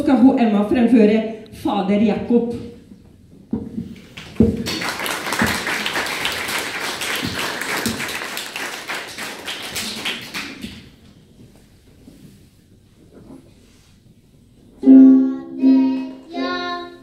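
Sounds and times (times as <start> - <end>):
audience clapping: 4.0 - 11.0.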